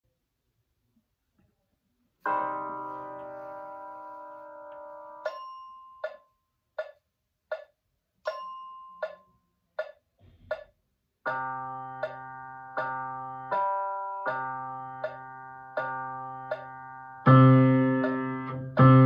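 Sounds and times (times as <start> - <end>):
piano held notes: 2.2 - 6.2, 11.3 - 19.0.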